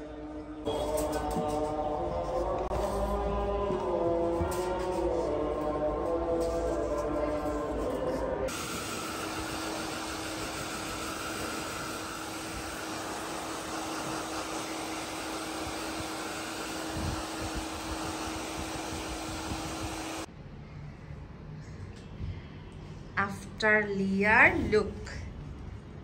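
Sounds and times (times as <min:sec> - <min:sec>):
blow dryer humming: 0:08.5 - 0:20.3.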